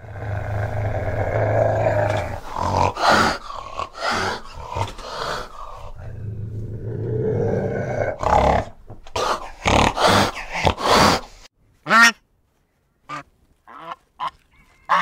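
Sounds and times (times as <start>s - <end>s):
cat growling: 0.0s - 11.5s.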